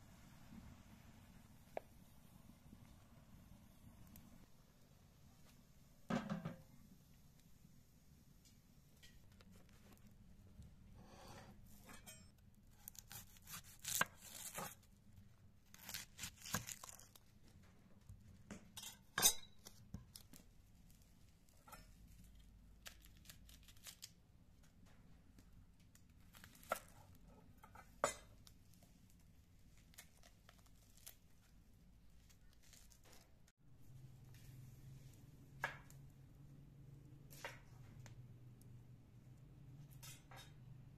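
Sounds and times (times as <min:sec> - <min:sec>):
knife cutting onion: 0:11.0 - 0:14.9, 0:15.7 - 0:17.2
onion skin rustling: 0:12.7 - 0:14.9, 0:15.6 - 0:17.4, 0:29.7 - 0:33.5.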